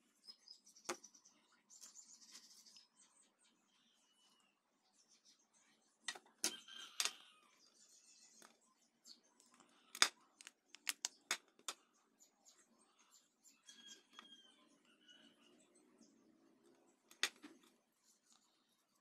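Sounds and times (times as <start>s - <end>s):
small sharp plastic clicks: 9.4s - 11.8s, 17.1s - 17.7s.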